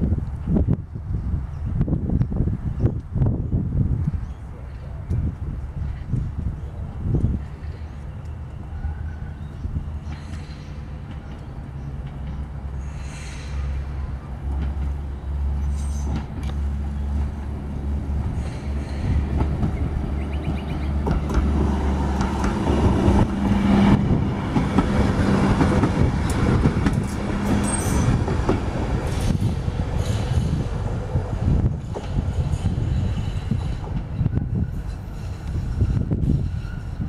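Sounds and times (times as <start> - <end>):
tram motor hum: 0.0 - 37.0
tram wheels rumbling on rails: 0.0 - 37.0
high wheel squeaks: 27.0 - 28.3.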